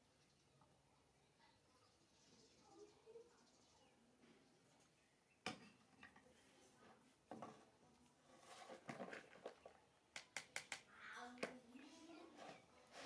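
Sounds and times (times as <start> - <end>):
soft knocks and rustles: 5.5 - 9.7.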